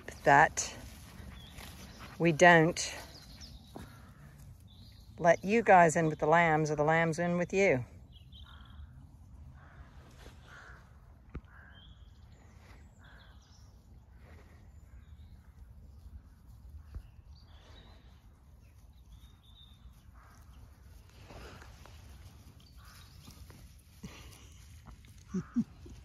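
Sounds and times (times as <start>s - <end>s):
faint bird calls: 8.3s - 16.0s, 19.1s - 26.0s.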